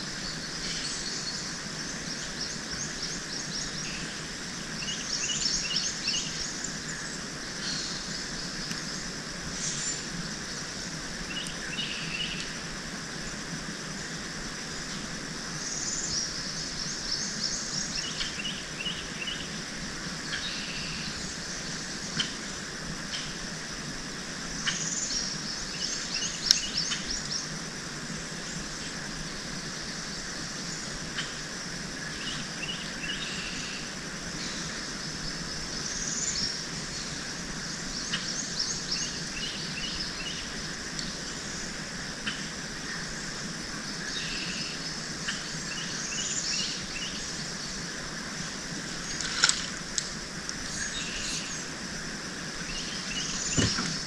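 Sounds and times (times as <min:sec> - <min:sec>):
outdoor background hiss: 0:00.0 - 0:54.0
birds chirping: 0:32.1 - 0:54.0
faint clicks: 0:49.1 - 0:50.7.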